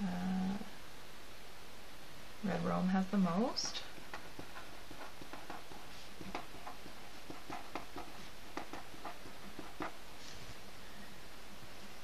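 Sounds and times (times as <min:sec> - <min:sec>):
steady background hiss: 0:00.0 - 0:12.0
pen writing on paper: 0:04.0 - 0:10.0.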